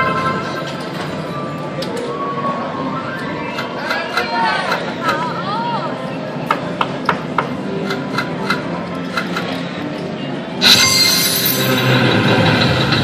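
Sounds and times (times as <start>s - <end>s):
slot machine music: 0.0s - 1.8s, 10.6s - 13.0s.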